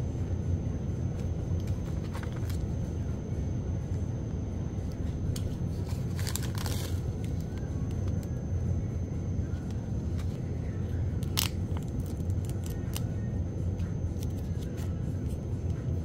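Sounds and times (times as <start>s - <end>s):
plastic sachets crinkling: 5.8s - 7.5s.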